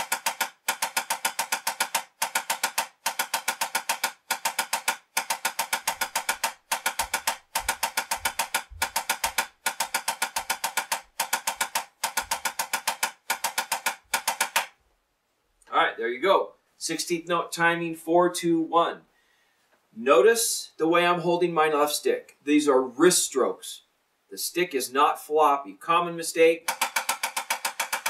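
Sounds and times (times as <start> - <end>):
drumsticks on practice pad: 0.0 - 14.7.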